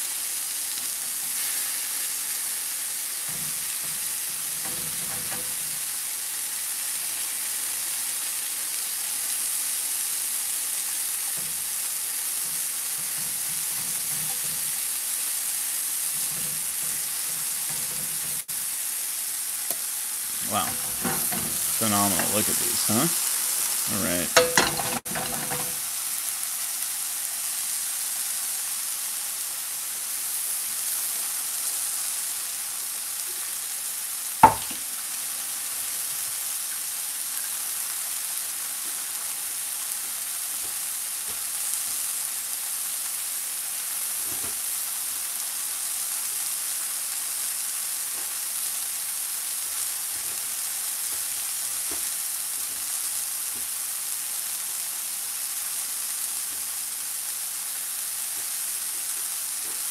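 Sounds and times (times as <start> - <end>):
mushrooms sizzling in oil: 0.0 - 59.9
sharp knock: 34.4 - 34.8.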